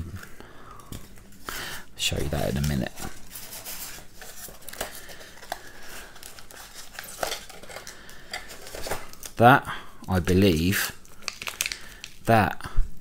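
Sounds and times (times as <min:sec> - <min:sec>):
foam rubbing and foil crinkling: 0:01.3 - 0:09.4, 0:10.1 - 0:12.3.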